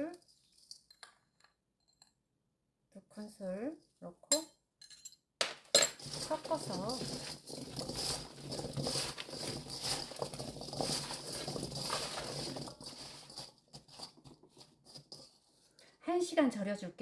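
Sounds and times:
vegetable pieces clattering in steel bowl: 0:05.7 - 0:15.5.

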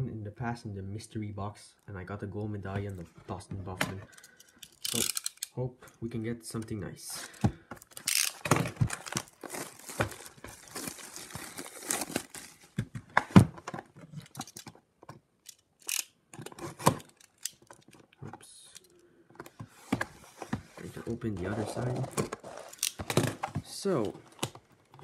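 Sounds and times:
plastic wrap crackling and tearing: 0:07.9 - 0:12.8.

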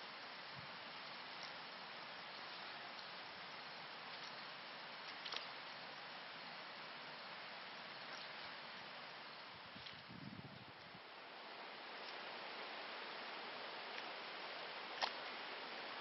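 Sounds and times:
faint outdoor hiss: 0:00.0 - 0:16.0
soft ticks: 0:02.9 - 0:03.1, 0:13.9 - 0:14.1.

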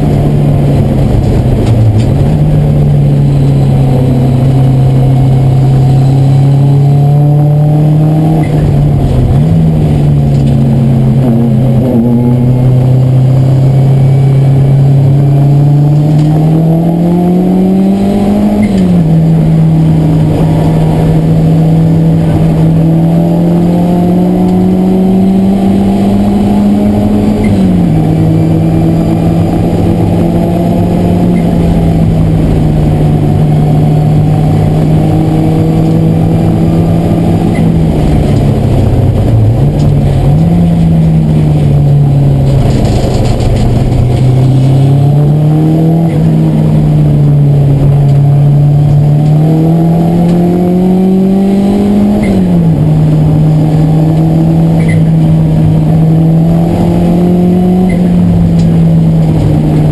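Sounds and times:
race car engine from inside: 0:00.0 - 0:59.9.

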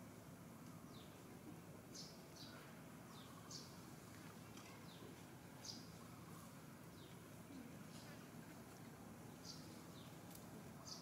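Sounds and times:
small bird chirping: 0:10.8 - 0:11.0.

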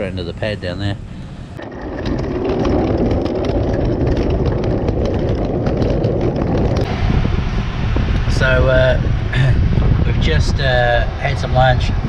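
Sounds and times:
luggage wheels rumbling on concrete: 0:01.5 - 0:10.6
wheels clicking over joints: 0:01.6 - 0:07.4.

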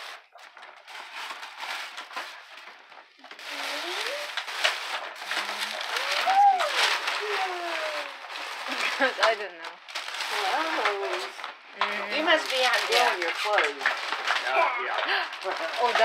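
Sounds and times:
paper bag rustling and crinkling: 0:00.0 - 0:16.0.

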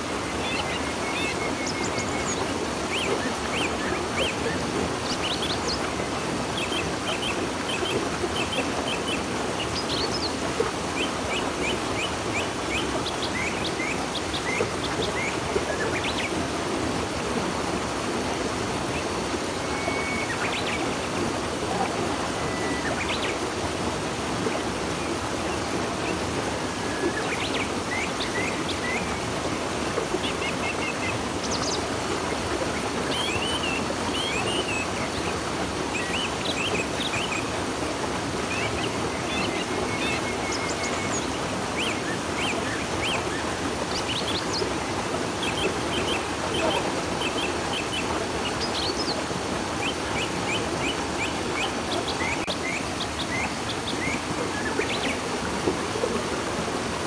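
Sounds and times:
river flowing: 0:00.0 - 0:57.0
small birds chirping: 0:38.6 - 0:55.3.

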